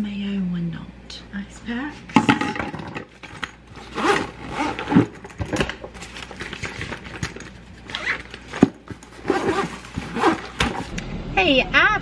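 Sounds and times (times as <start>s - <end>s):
zippers being pulled closed: 3.3s - 10.9s.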